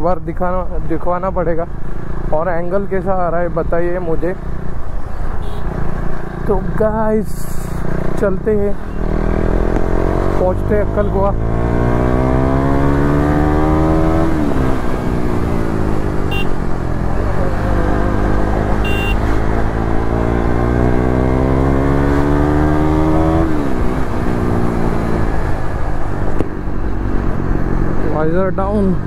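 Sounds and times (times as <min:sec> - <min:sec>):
single-cylinder motorcycle engine: 0:08.0 - 0:26.0.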